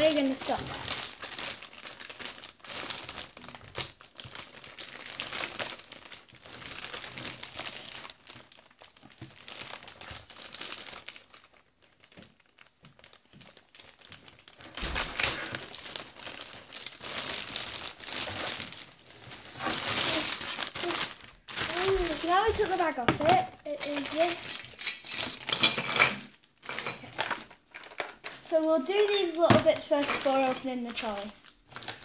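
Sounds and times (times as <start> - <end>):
plastic bag crinkling: 0.0 - 32.0.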